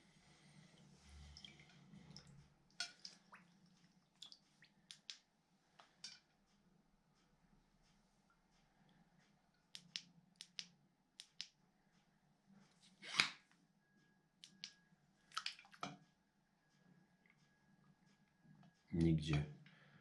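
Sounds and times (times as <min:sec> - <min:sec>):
small water splashes: 0:01.2 - 0:04.6, 0:15.3 - 0:15.9.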